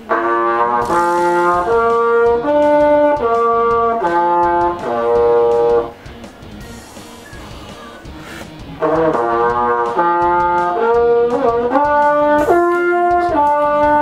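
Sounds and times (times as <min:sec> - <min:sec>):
trombone playing held notes: 0:00.0 - 0:06.0, 0:08.8 - 0:14.0.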